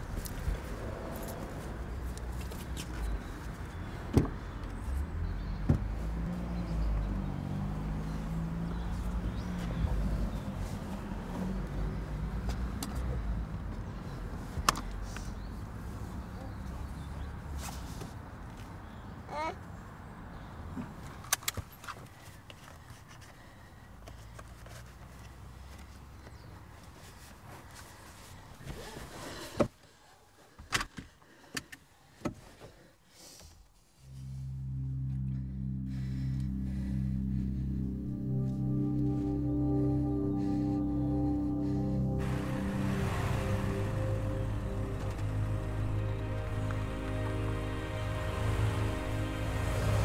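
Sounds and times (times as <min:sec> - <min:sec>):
low steady rumble: 0:34.0 - 0:50.0.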